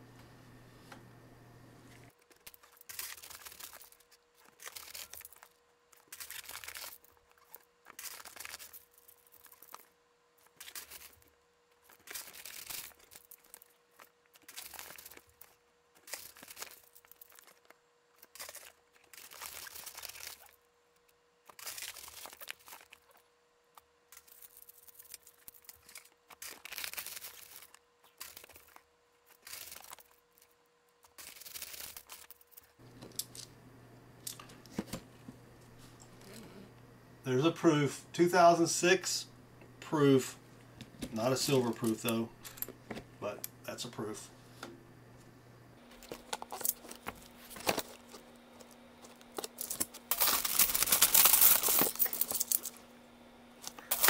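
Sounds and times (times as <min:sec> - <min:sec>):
plastic bag crinkling: 0:02.1 - 0:20.6, 0:21.5 - 0:23.2, 0:24.2 - 0:32.8, 0:45.8 - 0:52.7, 0:53.6 - 0:54.0
coins clinking and sliding: 0:49.4 - 0:52.8.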